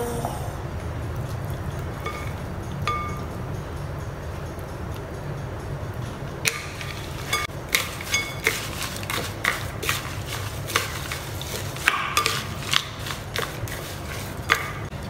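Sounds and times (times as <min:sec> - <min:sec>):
low steady hum: 0:00.0 - 0:15.0
spatula scraping glass bowl: 0:02.0 - 0:03.3, 0:06.5 - 0:14.9.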